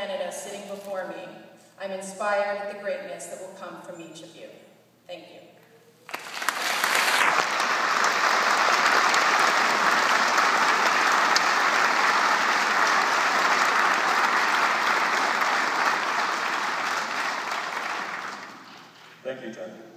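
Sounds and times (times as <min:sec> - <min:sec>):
audience applauding: 0:06.1 - 0:19.2.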